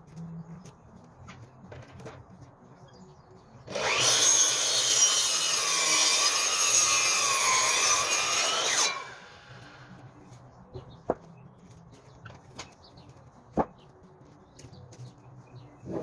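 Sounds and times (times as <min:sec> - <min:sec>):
mitre saw cutting timber: 0:03.7 - 0:09.9.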